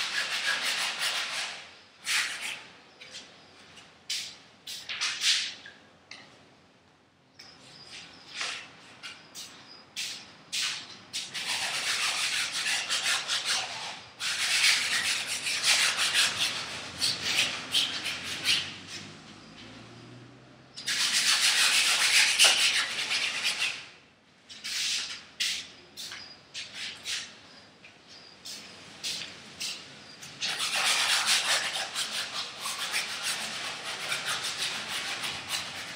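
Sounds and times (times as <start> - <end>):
paintbrush scrubbing on canvas: 30.4 - 35.9.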